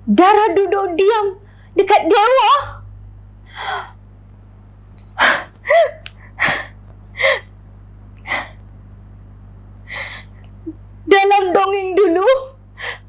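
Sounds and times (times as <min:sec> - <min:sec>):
woman sobbing: 0:05.2 - 0:07.5, 0:12.0 - 0:13.0.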